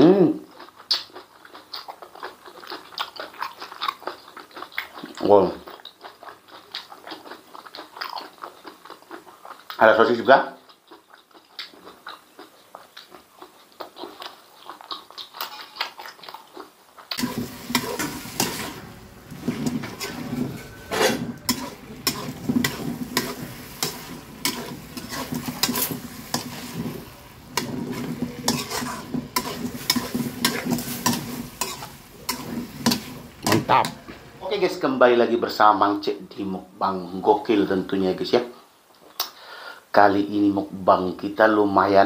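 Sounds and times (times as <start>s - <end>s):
faint chewing: 0.4s - 34.4s
food sizzling in a wok: 17.1s - 35.7s
spatula scraping a pan: 17.2s - 34.4s.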